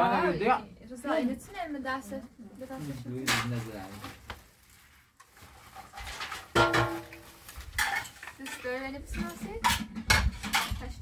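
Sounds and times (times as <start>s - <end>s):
dishes and cutlery clinking: 5.9s - 7.2s, 7.8s - 11.0s.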